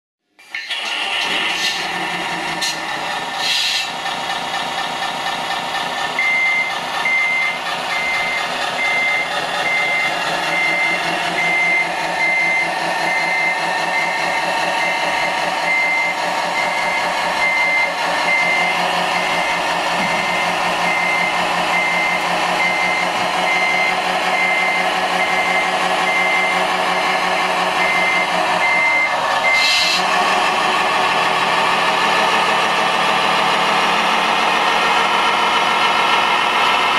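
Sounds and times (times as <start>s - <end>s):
diesel engine running: 0.4s - 36.9s
reversing beeper: 6.2s - 30.2s.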